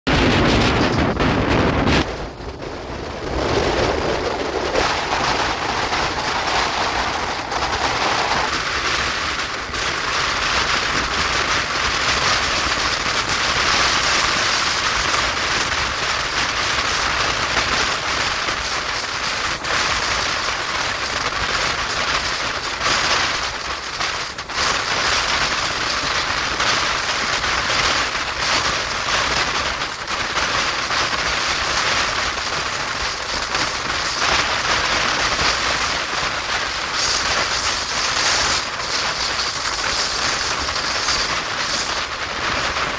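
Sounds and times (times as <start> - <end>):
wind rushing: 0.1 - 20.9, 30.8 - 42.9
wheel-on-rail noise: 0.1 - 42.9.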